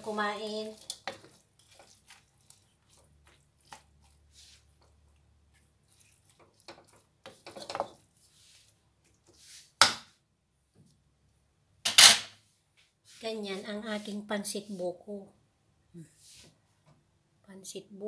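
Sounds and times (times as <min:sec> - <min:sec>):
wooden utensils scraping wok: 0:00.0 - 0:10.0.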